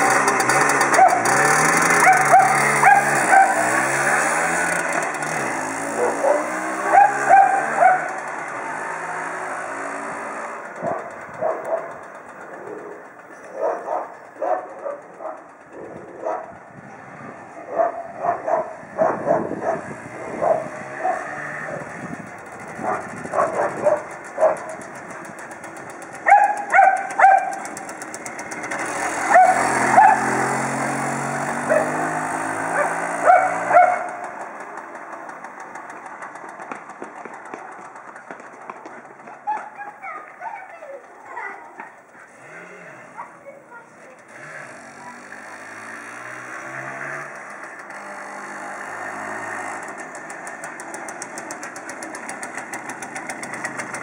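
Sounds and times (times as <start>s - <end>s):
moped engine passing: 0.0s - 54.0s
dog barking: 0.9s - 1.3s, 2.0s - 3.7s, 6.0s - 8.1s, 10.8s - 12.0s, 13.5s - 15.4s, 16.2s - 16.6s, 17.7s - 21.8s, 22.8s - 24.8s, 26.2s - 27.6s, 29.3s - 30.3s, 31.7s - 32.0s, 32.7s - 34.2s, 39.4s - 40.2s.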